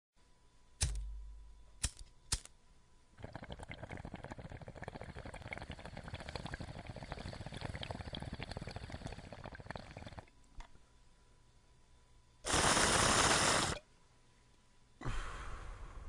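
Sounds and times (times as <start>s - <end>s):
sharp clicks: 0.8s - 1.2s
crackling bubbling: 3.2s - 10.5s, 12.5s - 13.8s.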